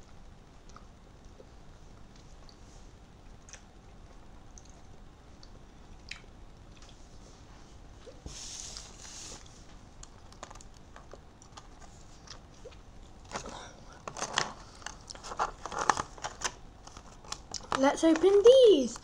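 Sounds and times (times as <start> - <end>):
plastic rustle: 13.2 - 18.9
plastic blister packs clicking: 13.3 - 18.4.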